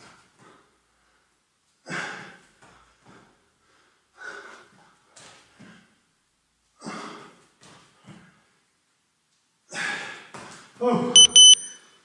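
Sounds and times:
man breathing hard: 0.4 - 5.1.

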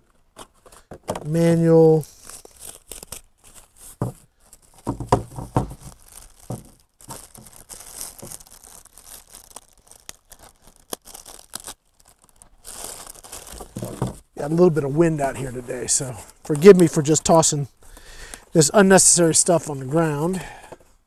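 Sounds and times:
plastic and paper crinkling: 0.0 - 20.5
knocks: 4.8 - 5.8.

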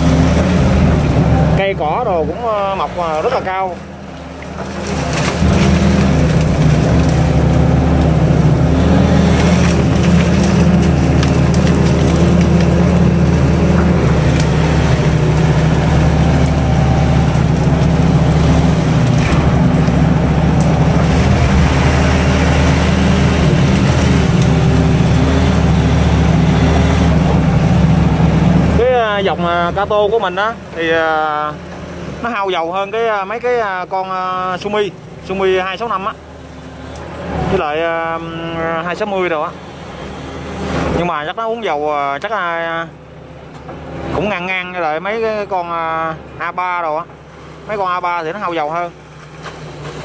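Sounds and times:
diesel excavator engine running: 0.0 - 50.0
bucket scraping and cracking brush: 4.5 - 8.2, 8.8 - 26.3.

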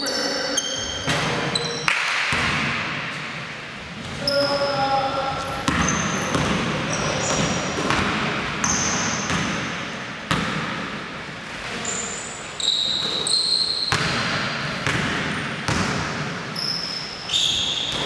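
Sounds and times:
sneakers squeaking on floor: 0.0 - 2.6, 3.2 - 10.6, 11.7 - 18.0
basketball bouncing on wooden floor: 5.6 - 9.6, 13.9 - 16.3.

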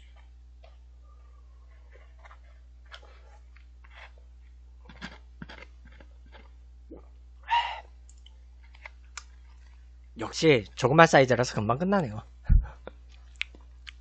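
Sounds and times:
soft chewing: 0.0 - 7.2, 7.8 - 10.0, 12.6 - 14.0.

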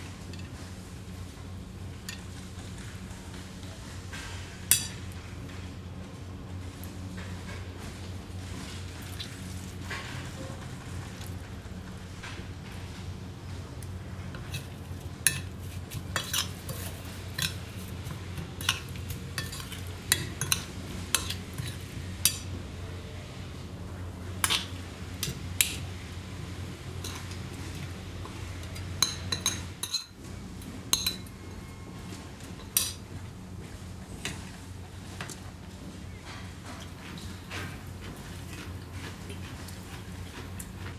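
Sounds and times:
spoon stirring salad in glass bowl: 14.4 - 22.5, 27.0 - 30.2, 30.9 - 31.3
spoon clinking against glass: 31.0 - 31.2.

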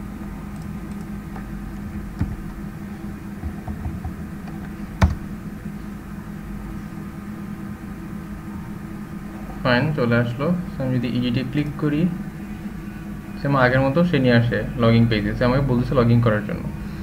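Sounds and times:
electrical hum: 0.0 - 17.0
keyboard and mouse clicks: 2.2 - 2.6.

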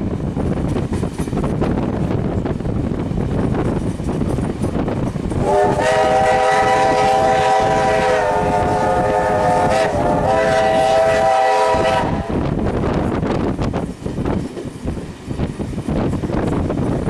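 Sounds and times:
rumble of moving train: 0.0 - 17.0
steam locomotive whistle blasts: 5.4 - 12.5.

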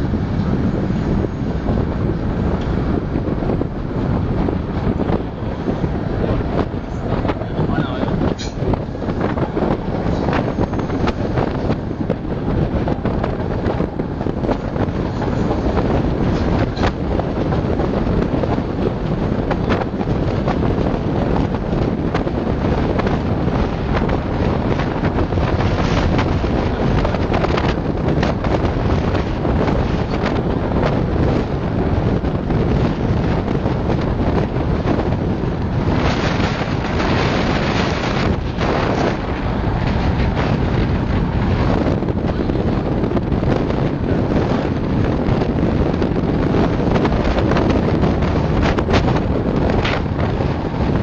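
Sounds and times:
train running on rails: 0.0 - 51.0
wind buffeting microphone: 0.0 - 51.0.

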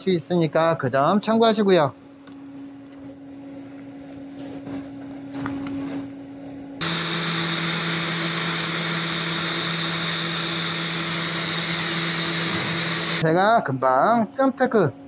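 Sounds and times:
welding arc buzzing: 6.8 - 13.2.

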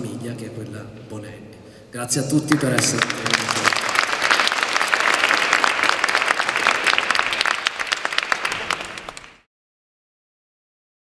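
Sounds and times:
audience applauding: 2.5 - 9.5.

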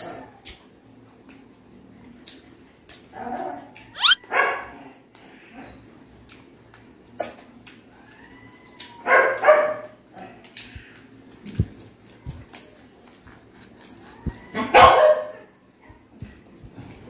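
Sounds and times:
puppy yelping and barking: 4.0 - 4.6.

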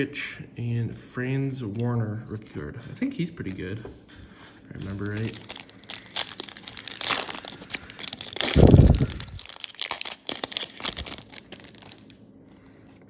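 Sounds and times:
foil wrapper crinkling and tearing: 4.8 - 12.2
low rumble: 8.4 - 9.6.

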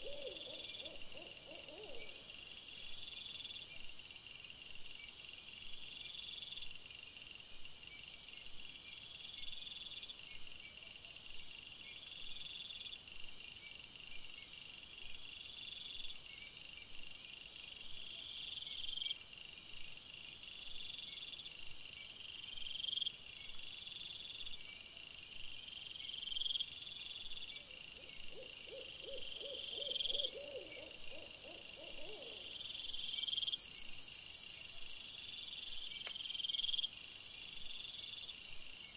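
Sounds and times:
insects chirping: 0.0 - 10.6, 11.2 - 38.9
rapid pulsing insect calls: 0.0 - 38.9.

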